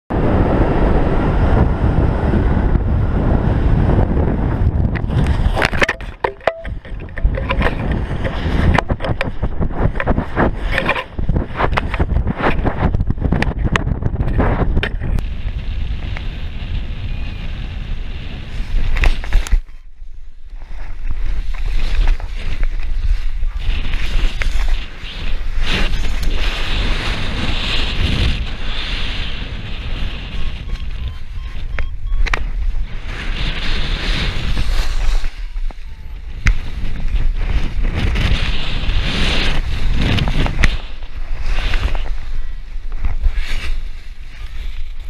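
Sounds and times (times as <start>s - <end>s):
wind buffeting microphone: 0.1s - 45.0s
wing fabric cracking and fluttering: 20.6s - 31.0s, 33.1s - 45.0s.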